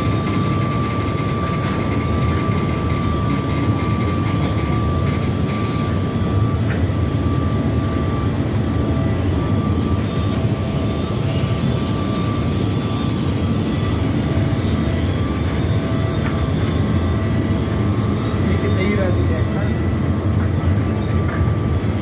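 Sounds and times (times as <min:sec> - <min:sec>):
machinery high whine: 0:00.0 - 0:22.0
machinery low drone: 0:00.0 - 0:22.0.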